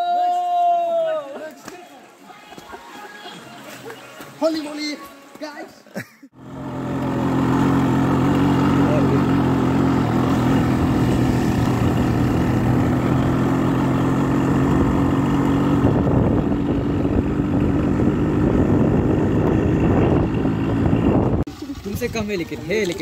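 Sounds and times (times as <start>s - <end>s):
vehicle engine running: 6.4s - 22.6s
road rumble: 6.4s - 23.0s.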